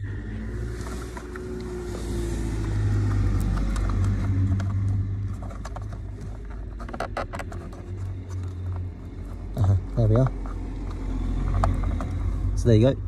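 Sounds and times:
plastic clicks and knocks: 0:03.1 - 0:09.5.

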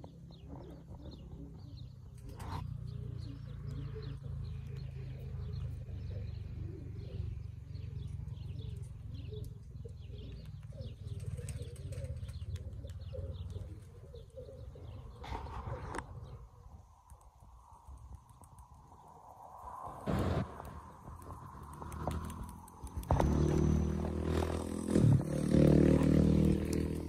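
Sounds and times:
small bird chirps: 0:00.0 - 0:16.4
pigeons cooing: 0:00.0 - 0:16.8, 0:20.7 - 0:27.0
low rumble: 0:19.0 - 0:25.3.

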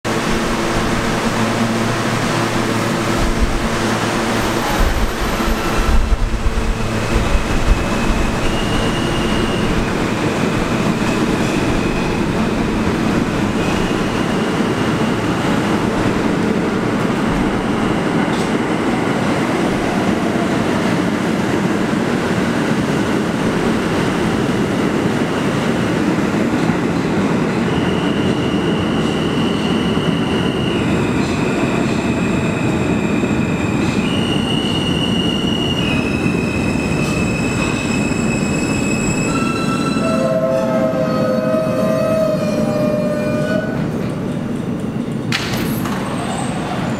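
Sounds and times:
train rumbling on rails: 0:00.0 - 0:46.9
wheel squeal: 0:07.7 - 0:12.6, 0:27.6 - 0:43.8.

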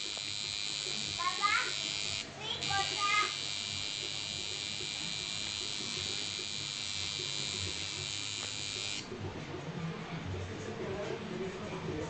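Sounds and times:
tattoo machine buzzing: 0:00.0 - 0:09.1.

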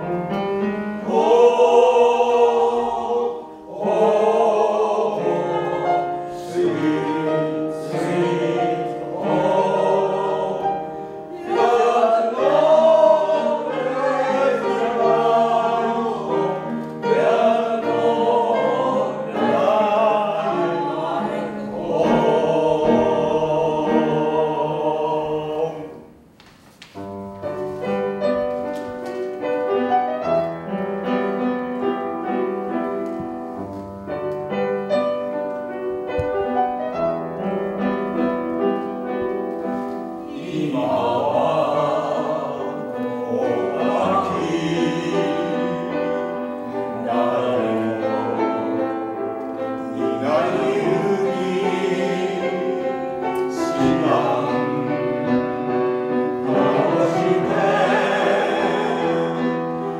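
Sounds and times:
vocal ensemble singing: 0:00.0 - 0:26.3, 0:39.6 - 0:59.9
upright piano accompaniment: 0:00.0 - 0:59.9.

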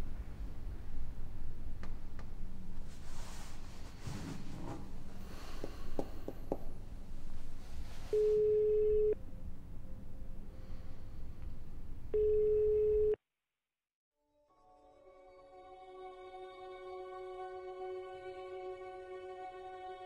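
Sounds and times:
telephone ringback tone: 0:08.2 - 0:09.2, 0:12.2 - 0:13.2.

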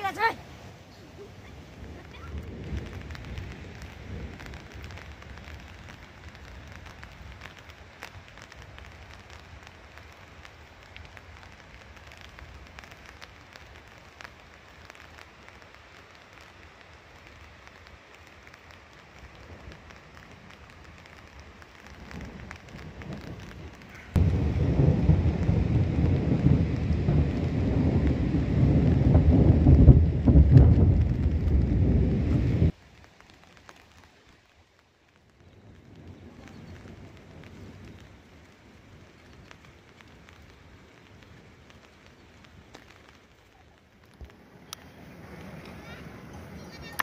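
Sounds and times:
wind buffeting microphone: 0:00.0 - 0:12.8, 0:19.2 - 0:32.8
faint outdoor hiss: 0:00.0 - 0:47.0.

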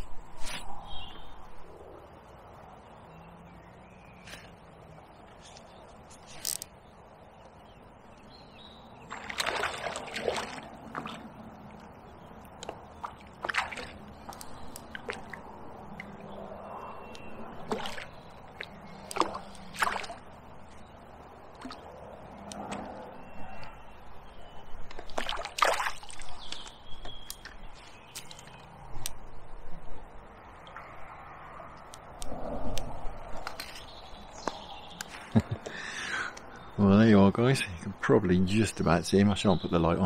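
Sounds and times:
water sloshing at bank: 0:09.0 - 0:16.5, 0:17.2 - 0:23.0, 0:24.4 - 0:28.7.

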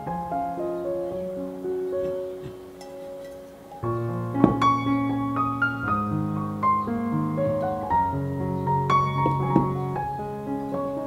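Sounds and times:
gentle piano music: 0:00.0 - 0:11.0
soft knock: 0:04.4 - 0:04.7.

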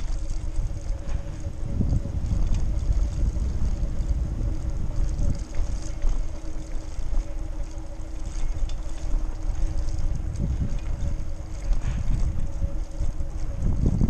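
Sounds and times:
steady low hum: 0:00.0 - 0:14.0
wind rumbling on microphone: 0:00.0 - 0:14.0.

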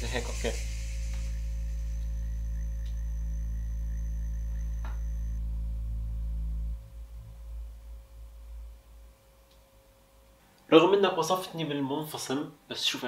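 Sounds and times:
faint uneven low rumble: 0:00.0 - 0:11.0
steady low hum: 0:00.0 - 0:11.1.

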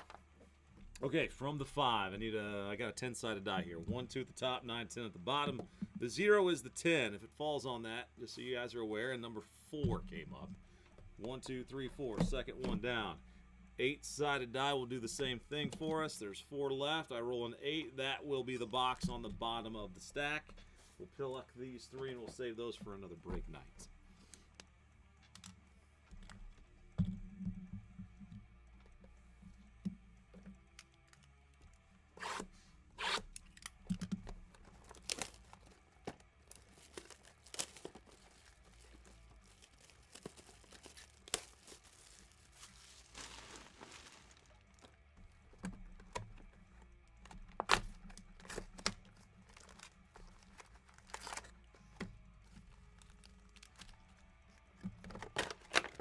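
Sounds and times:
wrapping rustling: 0:34.5 - 0:45.5, 0:48.2 - 0:56.0.

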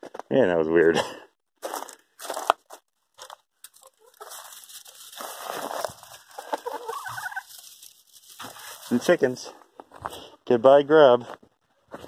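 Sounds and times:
chickens clucking: 0:03.7 - 0:04.6, 0:06.3 - 0:07.6.

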